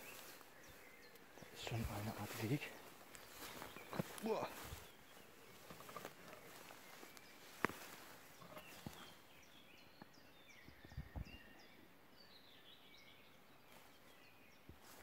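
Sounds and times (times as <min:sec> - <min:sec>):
footsteps through tall grass: 0:00.0 - 0:09.4, 0:13.7 - 0:14.1, 0:14.7 - 0:15.0
birdsong chirps and trills: 0:00.0 - 0:15.0.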